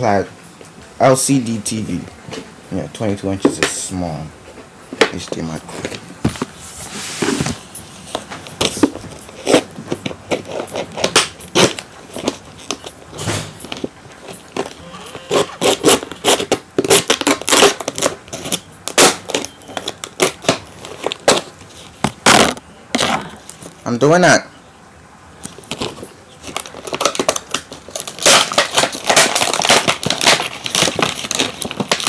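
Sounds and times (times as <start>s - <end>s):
packaging crackling and rustling: 5.1s - 23.8s, 25.4s - 32.0s.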